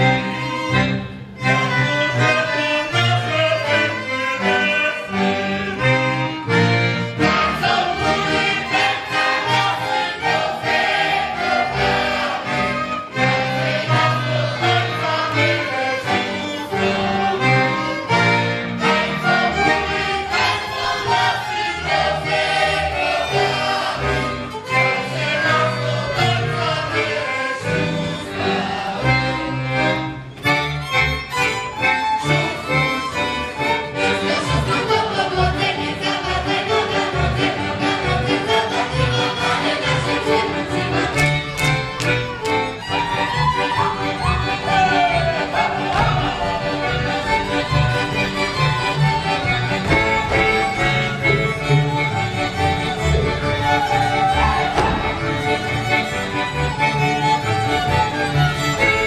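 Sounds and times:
accordion: 0.0s - 59.0s
fiddles playing dance tune: 0.0s - 59.0s.

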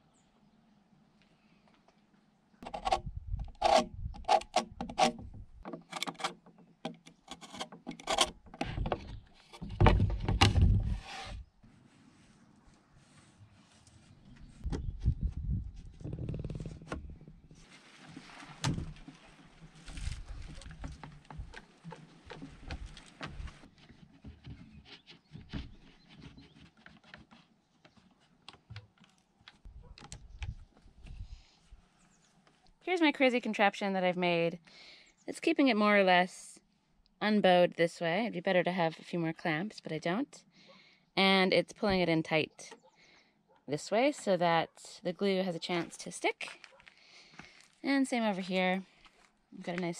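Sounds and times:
clamps scraping and clicking: 2.6s - 9.8s
wood knocking and rubbing: 2.6s - 11.4s, 15.8s - 17.6s, 18.6s - 28.0s.

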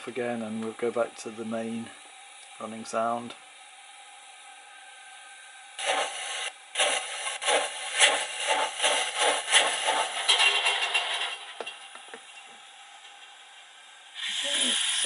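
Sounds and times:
steady steam hiss: 0.0s - 15.0s
model steam locomotive chuffs: 5.8s - 15.0s.

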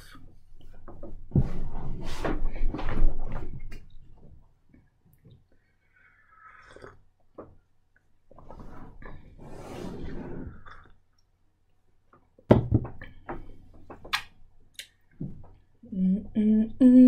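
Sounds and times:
slurping from a mug: 6.0s - 7.1s, 9.6s - 11.0s.

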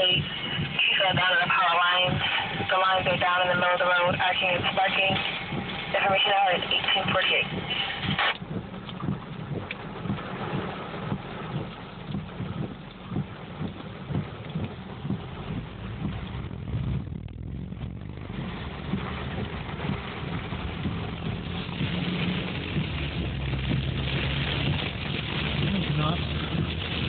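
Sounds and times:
hail and rain on car roof: 0.0s - 27.0s
moving car hum: 0.0s - 27.0s
hailstones knocking: 18.1s - 27.0s.

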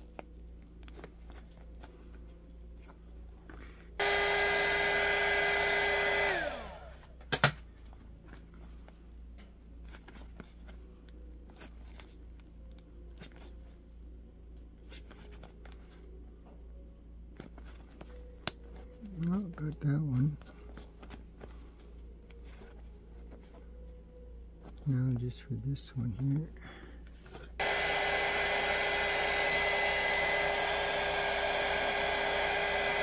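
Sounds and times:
heat gun blowing: 4.0s - 7.1s, 27.6s - 33.0s
fan motor whining down: 4.0s - 7.2s, 27.6s - 33.0s.

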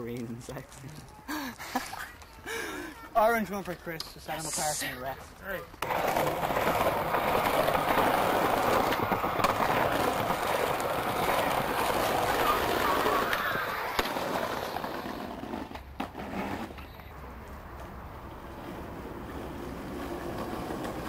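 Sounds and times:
skateboard rolling: 5.4s - 21.0s
skateboard grinding on brick ledge: 5.8s - 16.8s, 18.6s - 21.0s
skateboard landing clack: 5.8s - 16.8s.

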